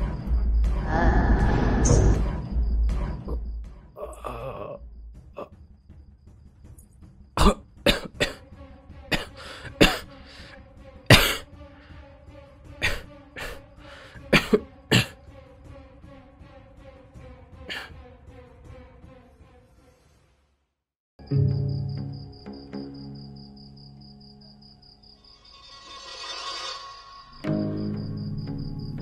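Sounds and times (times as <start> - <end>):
man coughing: 7.4 - 8.4, 9.1 - 10.1, 11.1 - 11.5, 12.8 - 13.6, 14.2 - 15.2, 17.7 - 18.0.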